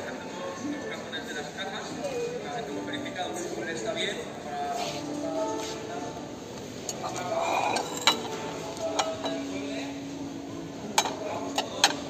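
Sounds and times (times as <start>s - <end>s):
low murmur of voices: 0.0s - 12.0s
crockery and glassware clinking: 6.8s - 9.8s, 10.8s - 12.0s.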